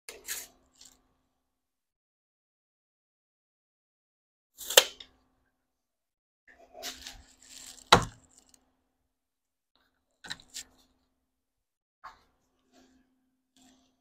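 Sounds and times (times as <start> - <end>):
wood scraping and rustling: 6.8 - 8.6.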